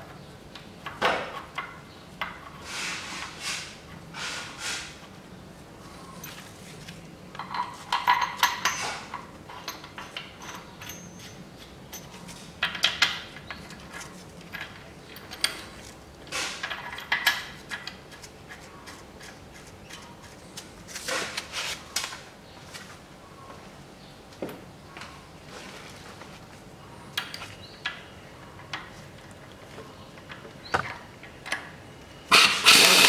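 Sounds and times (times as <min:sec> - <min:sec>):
metal tools clinking and rattling: 0:07.4 - 0:18.0.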